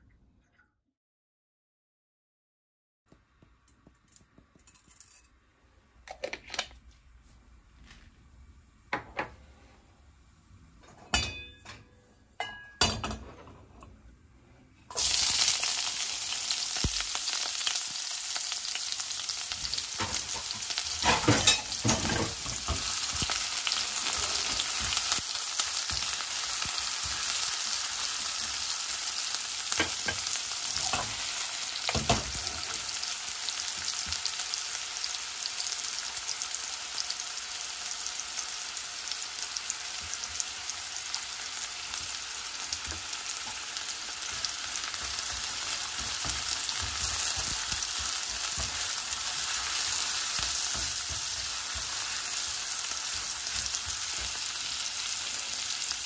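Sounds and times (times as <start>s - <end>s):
stirring clinks: 3.6s - 5.4s, 10.8s - 13.5s
onion sizzling in hot oil: 14.9s - 56.0s.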